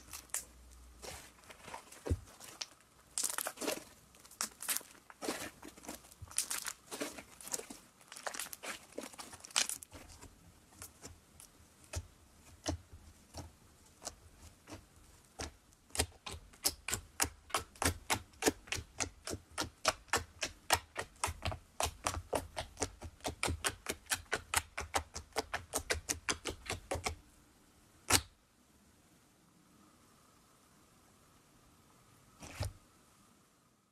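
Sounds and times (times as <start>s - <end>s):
fingers poking slime clicking: 11.9s - 14.8s, 15.4s - 27.2s.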